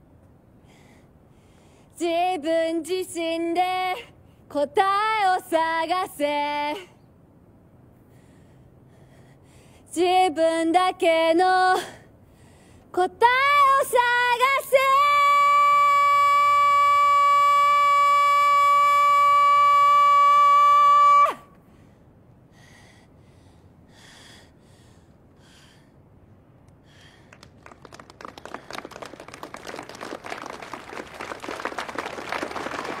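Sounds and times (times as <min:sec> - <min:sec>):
woman singing a long high note: 0:13.0 - 0:21.4
crowd clapping: 0:27.3 - 0:33.0.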